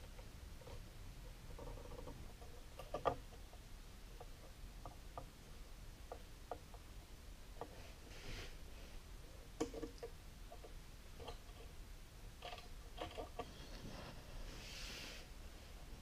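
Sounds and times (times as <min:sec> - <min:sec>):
soft scrape: 0:07.8 - 0:09.0, 0:13.4 - 0:16.0.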